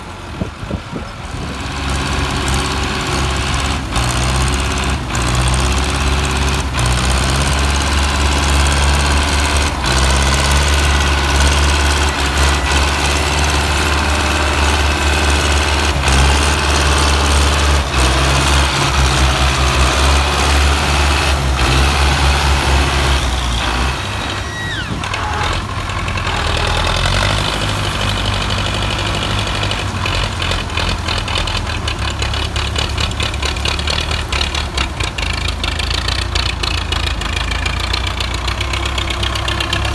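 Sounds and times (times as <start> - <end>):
tractor diesel engine running: 0.0 - 39.9
high squeal falling in pitch: 23.1 - 25.6.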